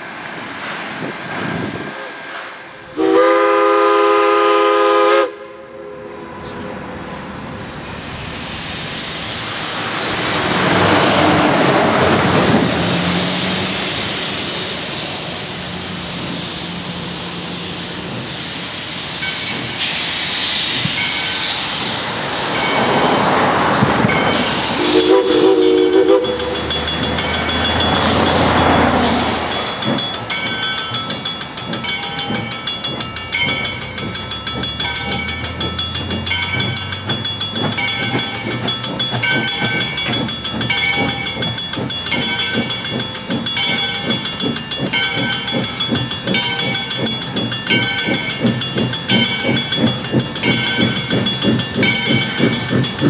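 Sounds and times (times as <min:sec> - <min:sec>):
steam exhaust and hissing: 0:00.0 - 0:53.0
steam whistle blast: 0:01.8 - 0:06.6, 0:24.8 - 0:26.6
crossing bell ringing: 0:22.5 - 0:53.0.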